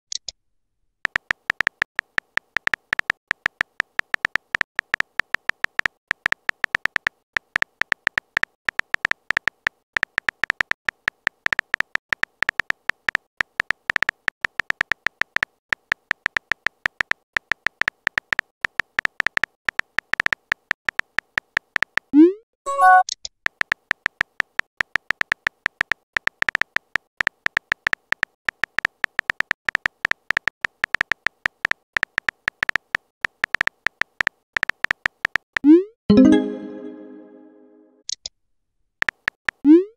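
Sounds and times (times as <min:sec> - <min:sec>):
keyboard typing clicks: 0:01.1 - 0:22.1, 0:22.7 - 0:38.2, 0:39.0 - 0:39.6
rising pop and chime: 0:36.1 - 0:37.8.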